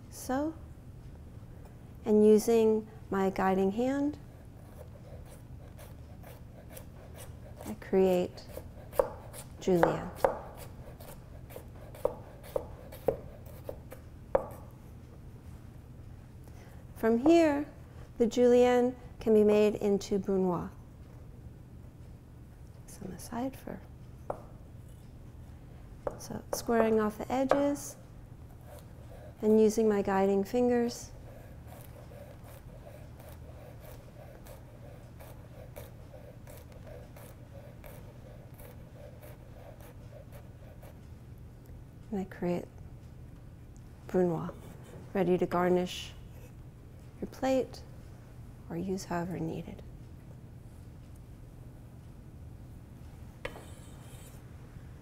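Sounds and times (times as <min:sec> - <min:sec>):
knife slicing carrot: 0:04.7 - 0:14.7, 0:31.2 - 0:40.8
knife chopping on wooden board: 0:08.4 - 0:14.7, 0:26.0 - 0:27.8.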